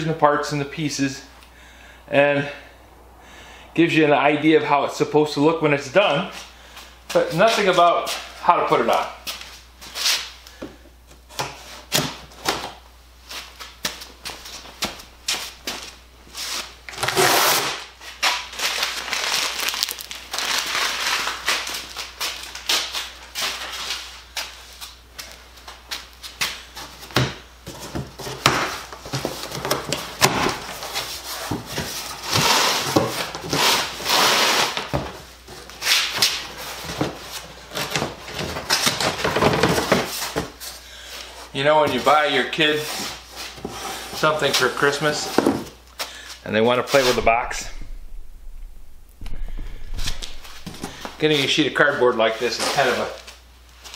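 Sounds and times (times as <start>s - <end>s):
packing tape tearing: 16.9s - 23.8s.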